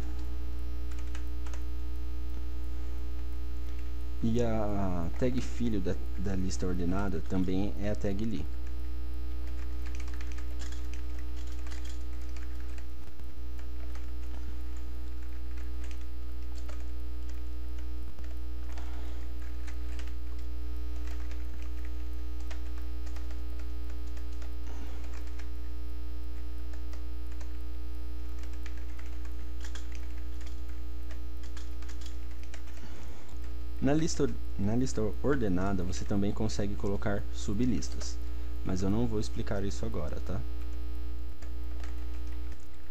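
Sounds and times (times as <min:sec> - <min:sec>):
electrical mains hum: 0:00.0 - 0:42.9
keyboard keystrokes: 0:09.5 - 0:13.2, 0:28.4 - 0:32.8.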